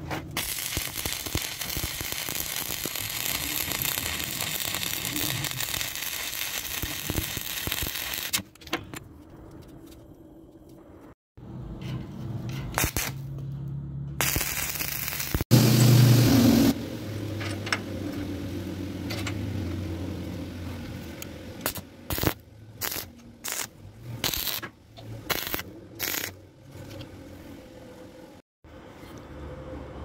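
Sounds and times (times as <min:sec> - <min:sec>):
arc welding crackle and hiss: 0:00.3 - 0:08.4, 0:12.8 - 0:13.3, 0:14.2 - 0:24.6, 0:25.3 - 0:26.4.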